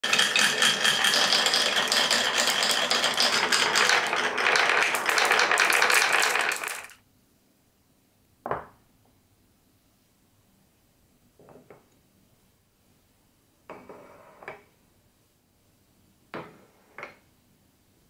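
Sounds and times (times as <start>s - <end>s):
marbles rattling on wooden track: 0.0s - 7.0s.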